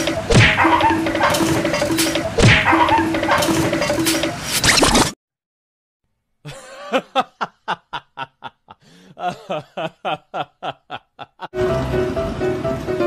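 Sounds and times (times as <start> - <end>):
person snickering laugh: 6.5 - 11.6.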